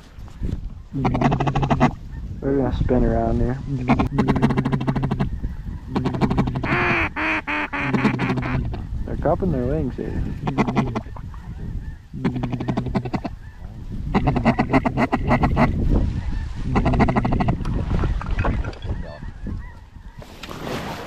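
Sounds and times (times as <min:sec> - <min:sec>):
duck quacking: 0:01.0 - 0:02.0, 0:03.6 - 0:05.3, 0:05.9 - 0:08.8, 0:10.4 - 0:11.5, 0:12.2 - 0:13.4, 0:14.1 - 0:15.8, 0:16.6 - 0:17.6.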